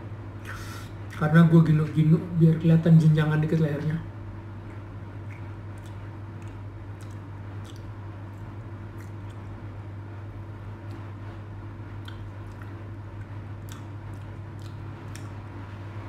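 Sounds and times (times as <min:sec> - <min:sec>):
steady low hum: 0:00.0 - 0:16.0
squishy chewing sounds: 0:04.6 - 0:09.8, 0:10.6 - 0:15.9.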